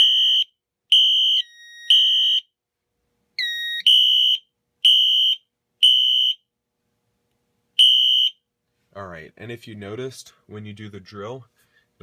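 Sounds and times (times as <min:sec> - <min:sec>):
fire alarm beeping: 0:00.0 - 0:02.5, 0:03.4 - 0:06.4, 0:07.8 - 0:08.4.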